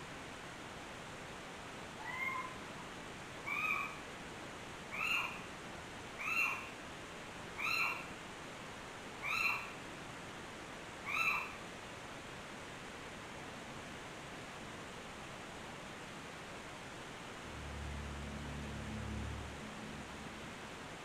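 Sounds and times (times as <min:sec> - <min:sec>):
steady hiss: 0:00.0 - 0:21.0
animal mewing cries: 0:02.0 - 0:02.6, 0:03.4 - 0:04.0, 0:04.9 - 0:05.5, 0:06.2 - 0:06.8, 0:07.6 - 0:08.1, 0:09.2 - 0:09.8, 0:11.0 - 0:11.6.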